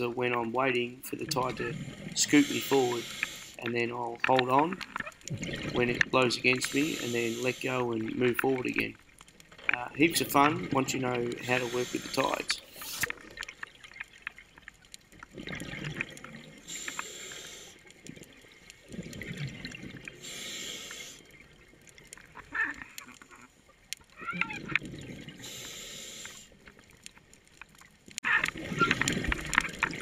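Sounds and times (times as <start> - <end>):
exhaled bubbles bubbling: 0.0 - 25.6, 28.2 - 30.0
regulator inhale hiss: 2.3 - 3.6, 6.6 - 7.8, 11.4 - 13.1, 16.6 - 17.8, 20.2 - 21.2, 25.4 - 26.6.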